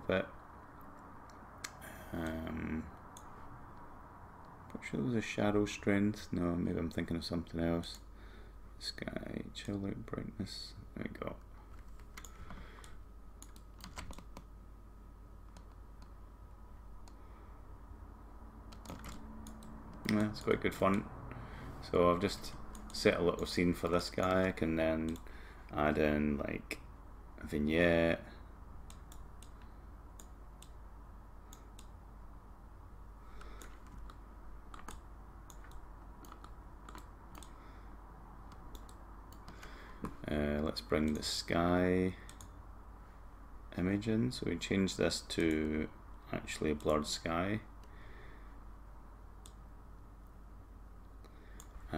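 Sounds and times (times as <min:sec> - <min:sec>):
steady low hum: 0:00.0 - 0:51.9
computer mouse clicks: 0:03.1 - 0:03.9, 0:11.7 - 0:14.5, 0:15.5 - 0:16.2, 0:18.7 - 0:21.0, 0:22.7 - 0:23.5, 0:24.2 - 0:25.3, 0:28.8 - 0:30.8, 0:31.5 - 0:32.0, 0:33.4 - 0:37.6, 0:38.5 - 0:40.2, 0:42.2 - 0:42.6, 0:49.4 - 0:49.6.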